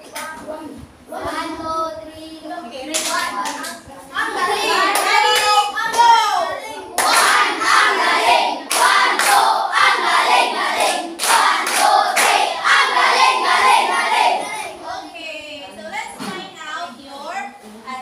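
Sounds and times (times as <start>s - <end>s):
hands clapping in rhythm: 2.9s - 3.8s, 4.9s - 6.1s, 7.0s - 7.7s, 8.6s - 9.9s, 10.8s - 12.9s
children singing together: 6.9s - 15.0s.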